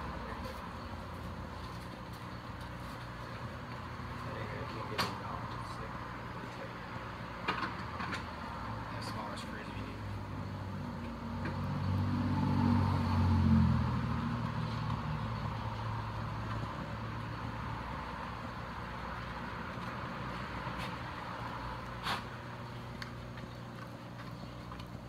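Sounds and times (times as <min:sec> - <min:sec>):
vehicle engine droning past: 0:09.9 - 0:18.2.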